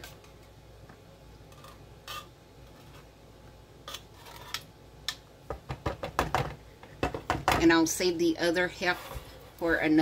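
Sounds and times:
spoon scraping metal can: 0:01.5 - 0:03.1.

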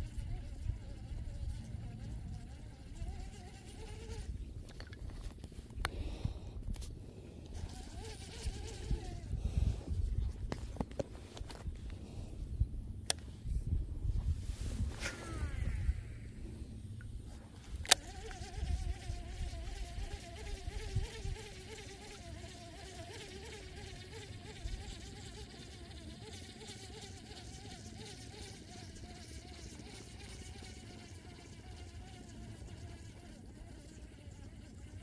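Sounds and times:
fishing reel whirring: 0:02.8 - 0:05.0, 0:07.4 - 0:10.2, 0:15.0 - 0:35.0.

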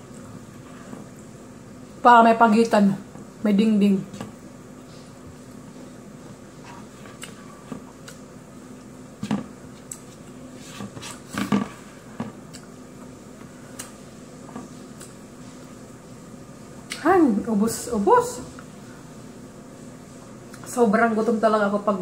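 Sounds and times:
low room hum: 0:00.0 - 0:22.0
chewing: 0:06.8 - 0:08.2.

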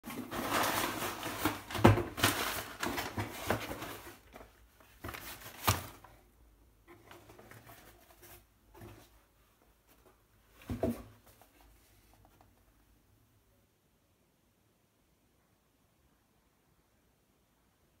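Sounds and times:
cardboard scraping and rustling: 0:00.1 - 0:06.1, 0:06.9 - 0:09.2.

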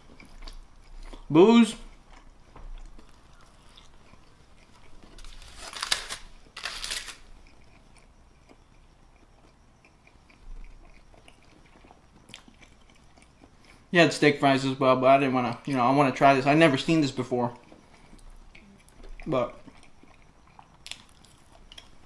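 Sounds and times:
chewing food: 0:00.0 - 0:13.9, 0:15.4 - 0:22.0
foil crinkling and scraping: 0:05.1 - 0:07.2.

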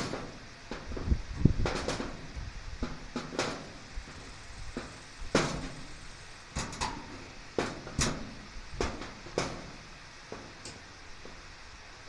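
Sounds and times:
metal hardware knocking and clicking: 0:06.6 - 0:08.2.

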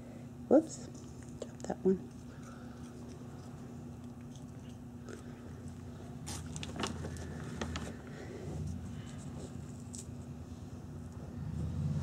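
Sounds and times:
cat crunching a treat: 0:00.8 - 0:08.2, 0:08.9 - 0:10.4.

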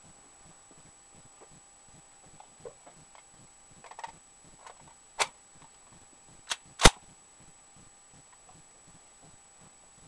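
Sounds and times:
sharp rifle click: 0:06.5 - 0:07.0.

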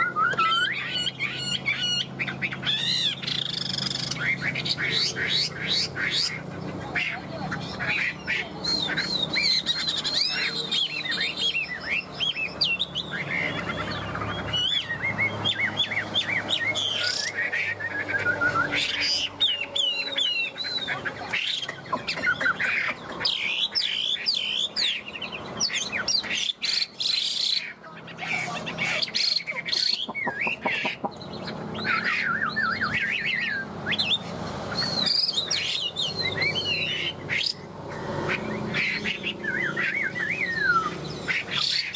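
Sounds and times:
bird singing whistled phrases: 0:00.0 - 0:06.4, 0:14.5 - 0:22.6, 0:31.8 - 0:34.2, 0:39.1 - 0:41.9.

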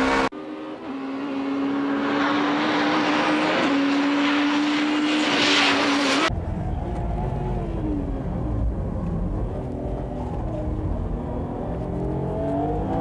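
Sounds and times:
race car engines at high revs: 0:00.0 - 0:08.3, 0:09.4 - 0:13.0
engine rumble inside car: 0:06.3 - 0:13.0.

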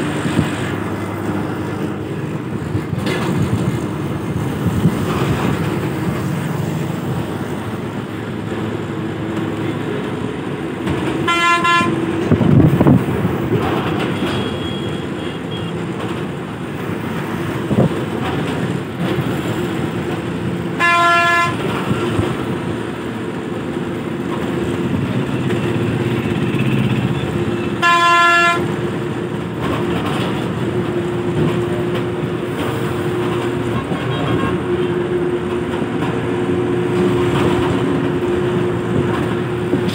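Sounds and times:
bus road and engine noise: 0:00.0 - 0:39.9
vehicle horn blasts: 0:11.2 - 0:12.0, 0:20.8 - 0:21.6, 0:27.6 - 0:28.7.

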